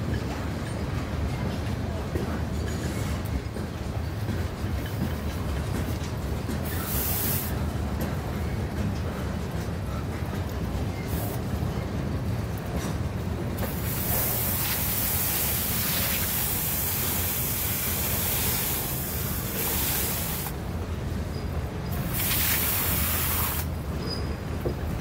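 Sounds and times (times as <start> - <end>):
freight train cars rumbling: 0.0 - 25.0
loud hiss: 6.7 - 7.6, 13.6 - 20.6, 21.9 - 23.7.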